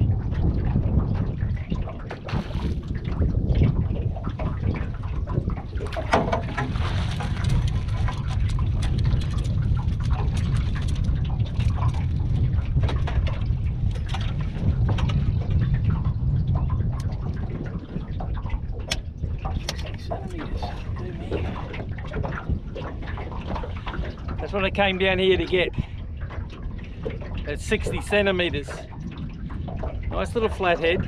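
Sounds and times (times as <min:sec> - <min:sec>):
water splashing: 0:00.0 - 0:31.0
wind buffeting microphone: 0:00.0 - 0:31.0
knocks on aluminium boat: 0:05.7 - 0:06.9.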